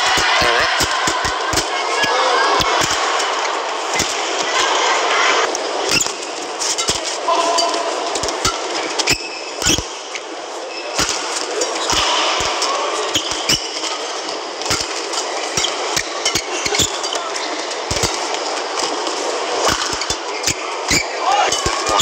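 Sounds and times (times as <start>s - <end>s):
rackets striking shuttlecock: 0.0s - 1.7s, 5.8s - 10.0s, 10.9s - 17.2s, 17.9s - 22.0s
crowd hubbub: 0.0s - 22.0s.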